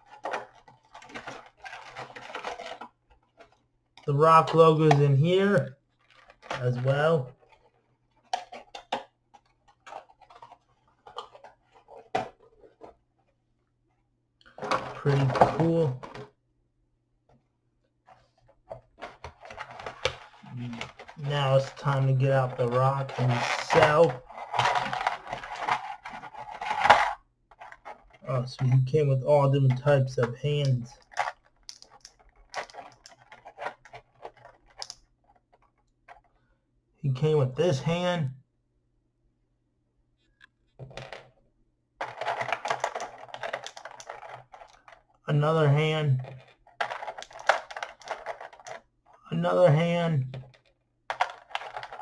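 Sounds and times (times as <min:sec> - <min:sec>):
plastic packaging clicks and rustles: 0:00.0 - 0:03.6, 0:05.9 - 0:13.0, 0:18.2 - 0:28.3, 0:29.7 - 0:36.4, 0:42.0 - 0:45.2, 0:46.2 - 0:49.2, 0:50.4 - 0:52.0.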